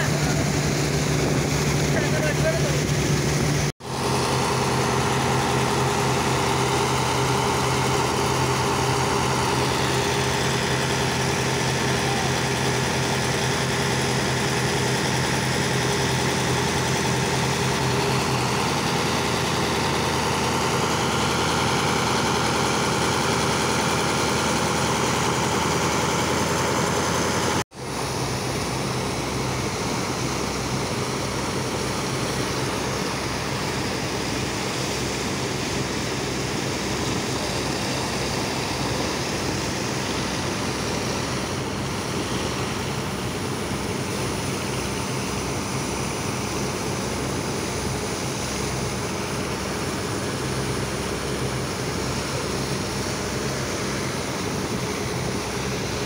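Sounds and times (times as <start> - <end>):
engine running steadily: 0.0 - 56.0.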